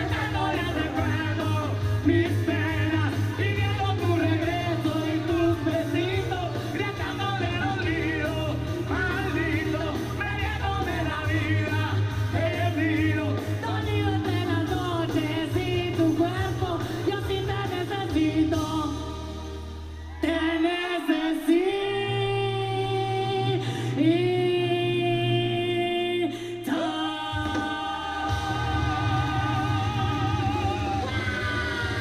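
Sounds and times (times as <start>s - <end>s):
rock band backing music: 0.0s - 24.4s, 26.7s - 32.0s
man and woman singing duet: 0.0s - 32.0s.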